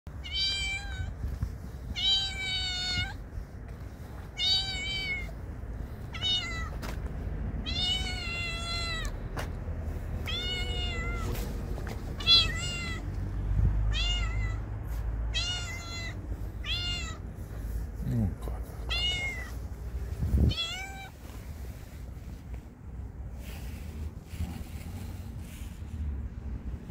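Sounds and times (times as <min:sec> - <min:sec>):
cat meowing: 0:00.2 - 0:01.3, 0:01.9 - 0:03.2, 0:04.3 - 0:05.4, 0:06.0 - 0:06.8, 0:07.6 - 0:09.2, 0:10.2 - 0:13.2, 0:13.8 - 0:14.7, 0:15.3 - 0:17.3, 0:18.8 - 0:19.6, 0:20.4 - 0:21.4.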